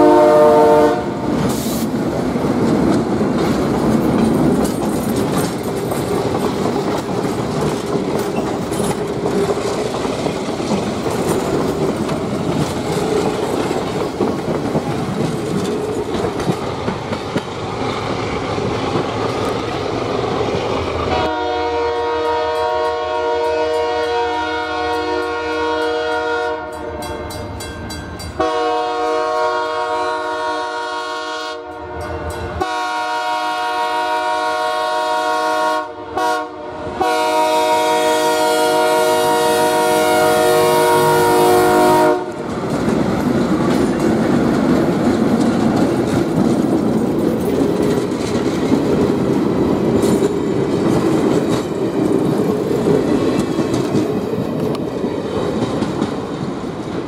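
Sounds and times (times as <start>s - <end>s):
locomotive air horn blasts: 0.0s - 1.3s, 21.1s - 27.4s, 28.4s - 42.4s
train wheels on rails: 0.0s - 35.6s, 36.2s - 57.0s
diesel train passing: 0.0s - 57.0s.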